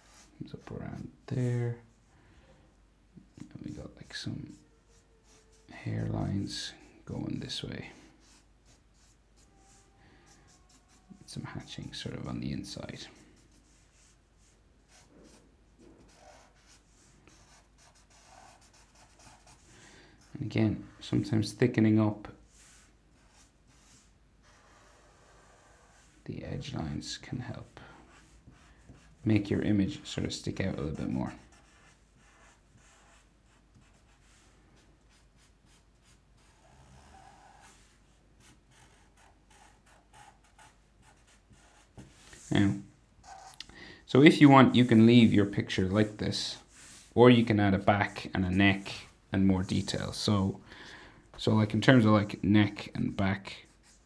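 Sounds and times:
marker strokes on paper: 0.0 - 0.7, 4.0 - 6.0, 7.5 - 9.9, 10.5 - 21.1, 22.4 - 26.2, 27.6 - 43.6, 44.7 - 50.3, 51.8 - 54.0
pen scratching on paper: 16.0 - 20.3, 22.6 - 26.2, 28.0 - 29.2, 31.0 - 42.4, 53.6 - 54.0.

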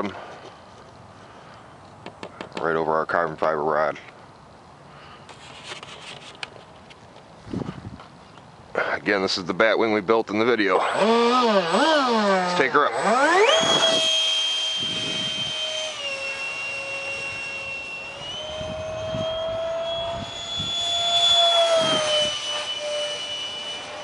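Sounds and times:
electric ducted fan whining: 4.8 - 24.0.

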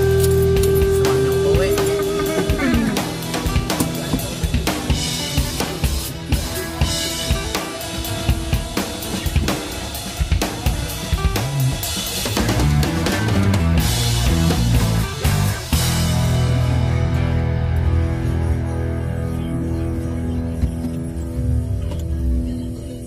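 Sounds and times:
rapid drum and cymbal hits: 0.0 - 16.9
rock music: 0.0 - 22.7.

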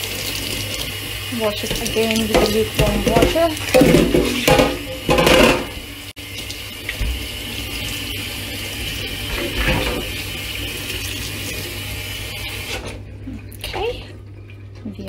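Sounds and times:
tap water splashing on metal: 1.5 - 7.3.

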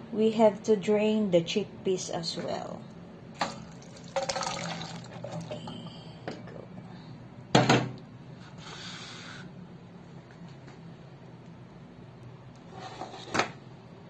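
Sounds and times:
liquid pouring through colander: 3.4 - 5.6.

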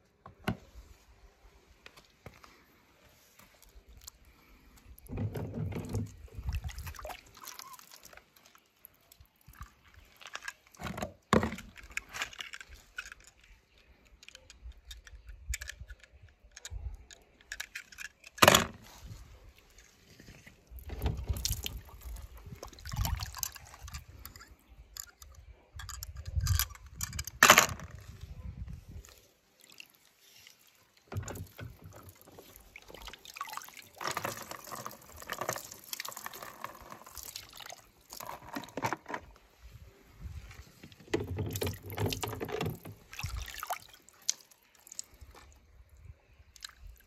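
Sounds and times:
light splashing water: 6.1 - 10.8, 29.0 - 38.4, 41.5 - 45.6
toy cars clattering: 10.3 - 18.8, 23.3 - 28.1.

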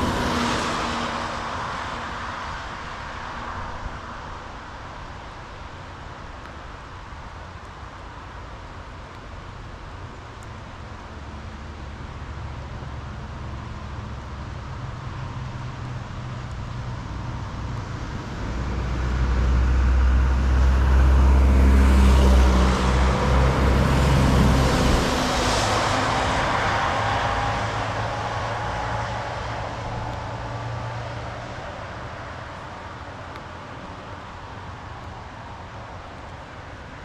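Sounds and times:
vehicle passing by: 0.0 - 2.6, 17.0 - 32.5.

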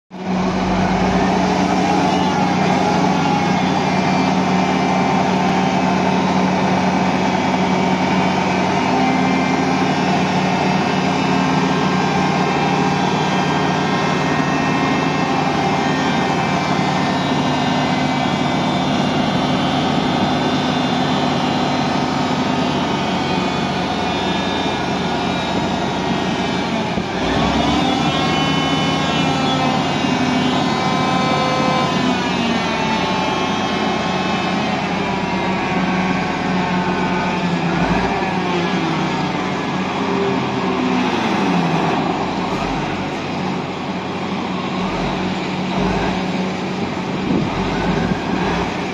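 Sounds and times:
diesel engine running: 0.1 - 48.9.

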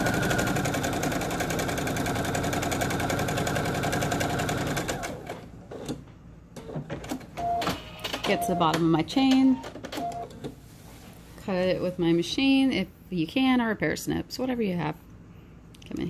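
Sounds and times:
sewing machine stitching: 0.0 - 6.0.

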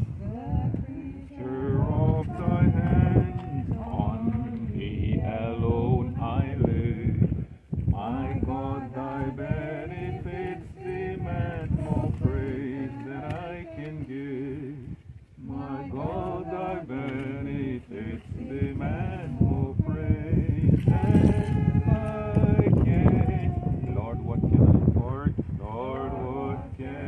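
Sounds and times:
man chanting: 20.9 - 26.8.

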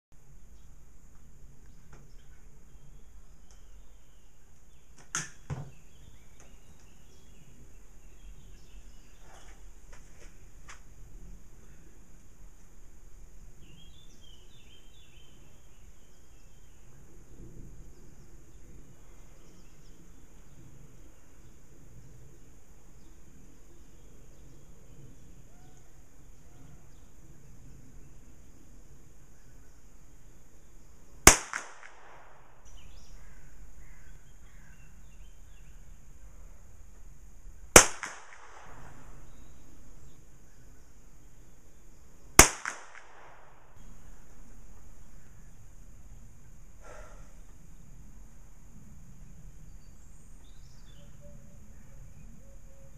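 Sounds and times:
faint bird chirps: 23.0 - 31.0, 32.6 - 36.6, 45.0 - 48.0, 49.6 - 52.9
pistol shots with echo: 31.2 - 32.8, 37.7 - 39.2, 42.4 - 44.0.

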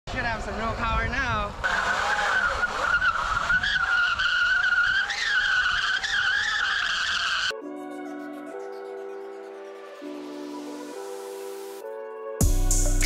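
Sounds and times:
tire squealing on concrete: 0.3 - 7.6
music: 7.5 - 13.0.

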